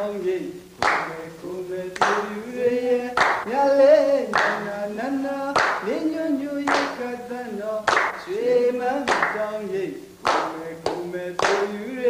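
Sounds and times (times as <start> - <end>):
person singing: 0.0 - 12.0
hand claps: 0.8 - 1.2, 2.0 - 2.4, 3.2 - 3.5, 4.3 - 4.7, 5.5 - 6.0, 6.6 - 7.0, 7.9 - 8.3, 9.0 - 9.5, 10.2 - 11.8.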